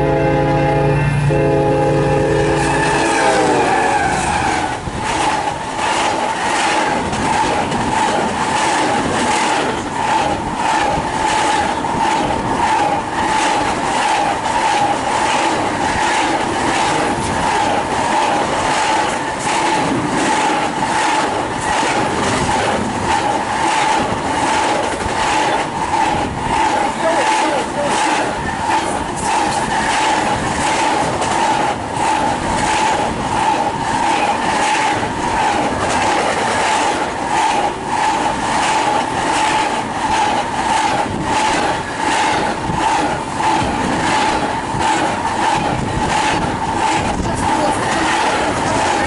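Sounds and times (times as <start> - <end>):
locomotive horn: 0.0 - 4.7
train rushing past: 0.0 - 49.0
train wheels clicking: 2.5 - 49.0.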